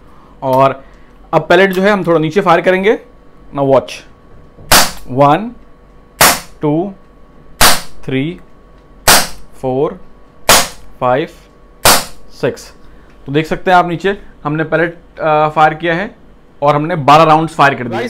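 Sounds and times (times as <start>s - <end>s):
air pistol shots: 4.7s - 5.1s, 6.2s - 6.6s, 7.6s - 8.0s, 9.0s - 9.5s, 10.5s - 10.9s, 11.8s - 12.2s.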